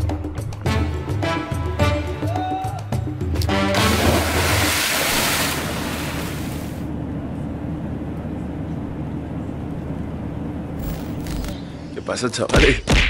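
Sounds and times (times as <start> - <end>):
low hum: 3.7 - 12.1
jet cabin engine drone: 5.4 - 12.4.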